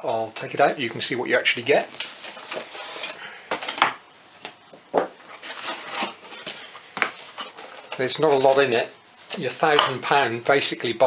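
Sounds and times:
cardboard rubbing and scraping: 2.0 - 3.2, 5.3 - 8.6.

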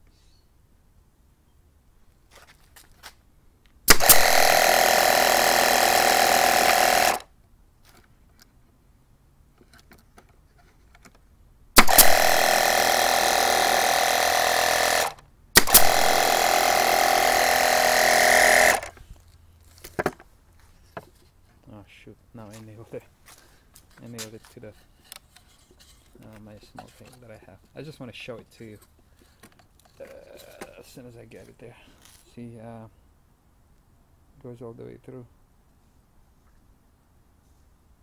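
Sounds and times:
air compressor buzzing drone: 3.9 - 7.2, 11.8 - 18.9
nailer firing snap: 3.9 - 7.2, 11.8 - 18.9.

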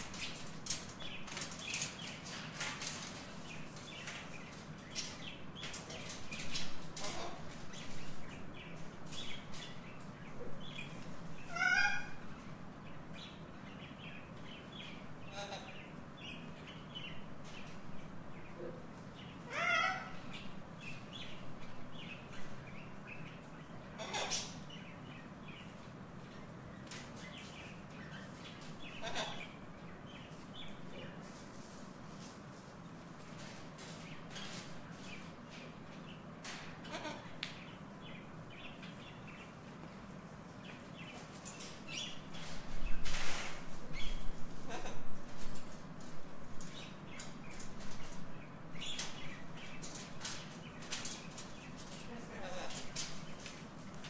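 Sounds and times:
birds chirping and clicking: 0.0 - 54.0
parrot squawks: 11.5 - 12.2, 19.5 - 20.2, 29.0 - 29.4.

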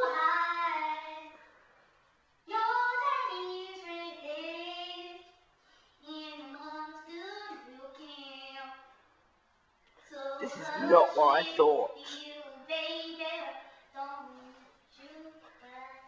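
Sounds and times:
girl singing held notes: 0.0 - 1.4, 10.1 - 16.0.

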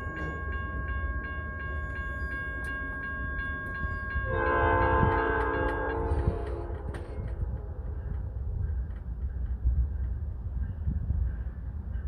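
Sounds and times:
train rumble: 0.0 - 12.0
locomotive air horn chord: 4.2 - 7.0.

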